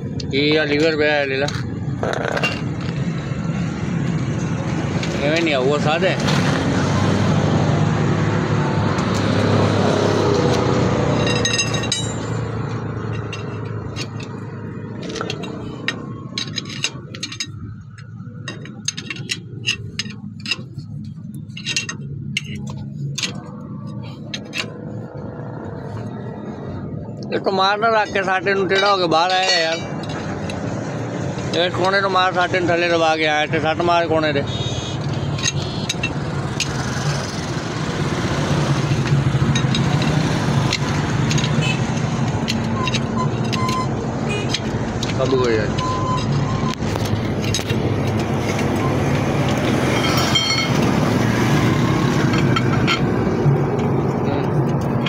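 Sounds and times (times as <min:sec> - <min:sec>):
steel rod clinking on metal hub: 0:11.1 - 0:25.0, 0:28.0 - 0:30.8, 0:35.2 - 0:36.8, 0:38.0 - 0:51.2, 0:52.0 - 0:53.4.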